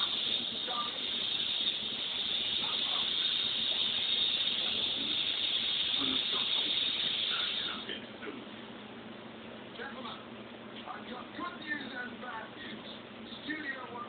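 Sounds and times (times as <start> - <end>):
steady high hiss: 0.0 - 8.4.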